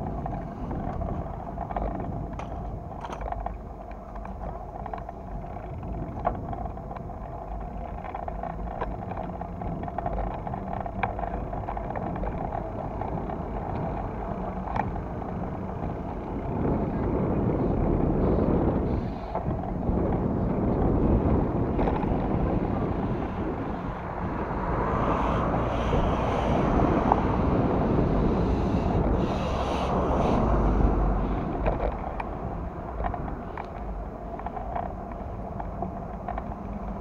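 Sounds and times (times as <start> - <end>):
light clicks and rattles: 0.0 - 16.8, 31.4 - 37.0
wheels rolling over paving: 0.0 - 37.0
wind on microphone: 0.0 - 37.0.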